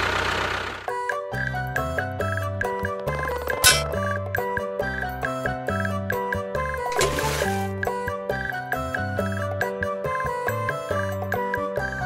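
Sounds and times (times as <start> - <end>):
engine humming and hissing: 0.0 - 0.9
background music with held notes: 0.9 - 12.0.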